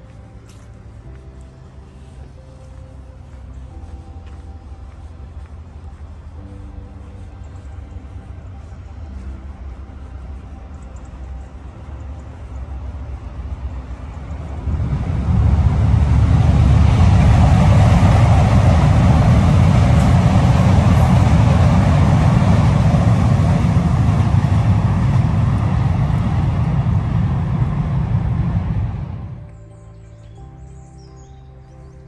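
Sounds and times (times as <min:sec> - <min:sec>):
wind buffeting microphone: 0:04.6 - 0:29.5.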